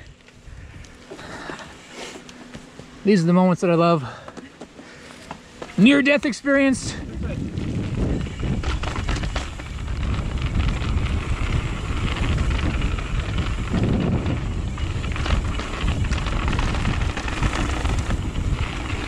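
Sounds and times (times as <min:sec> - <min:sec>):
wind buffeting microphone: 0:05.8 - 0:19.0
bike knocks and rattles: 0:07.3 - 0:19.0.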